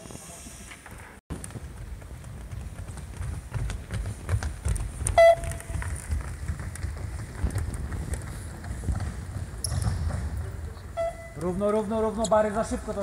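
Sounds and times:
running footsteps on hall floor: 1.3s - 13.0s
short electronic beep: 11.0s - 11.4s.

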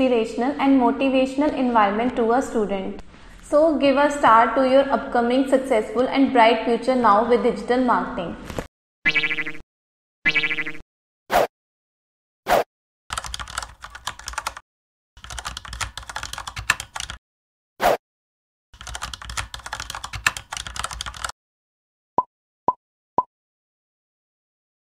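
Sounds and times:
short high blips: 9.1s - 9.6s
rapid keyboard key clicks: 13.1s - 14.6s, 15.2s - 17.2s, 18.8s - 21.3s.

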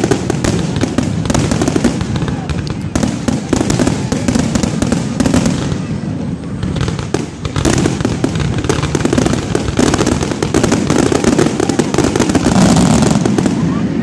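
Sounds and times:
fireworks booming and crackling: 0.0s - 14.0s.

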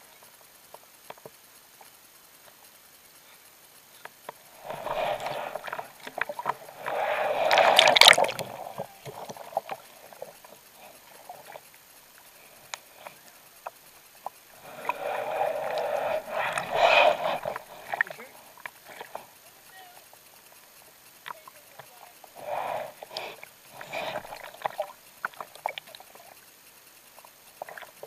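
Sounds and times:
water splashing from hand paddling: 4.6s - 9.7s.

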